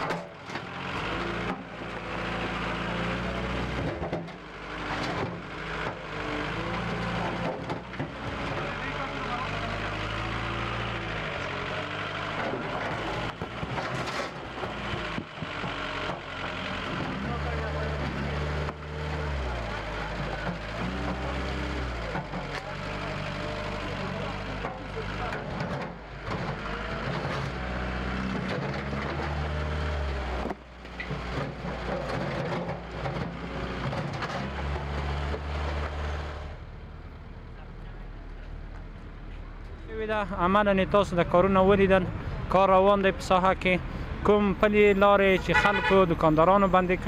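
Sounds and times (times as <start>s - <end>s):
knocks and clatter: 0.0s - 2.6s, 3.6s - 6.0s, 6.7s - 8.8s, 12.2s - 16.3s, 20.0s - 22.8s, 24.5s - 27.6s, 28.2s - 29.5s, 30.4s - 36.0s
vehicle engine running: 0.0s - 45.0s.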